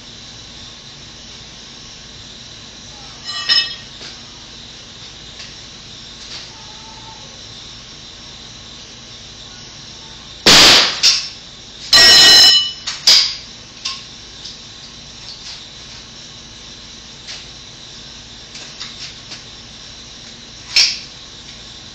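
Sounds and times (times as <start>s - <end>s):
loud bangs with ringing tail: 10.4s - 11.4s.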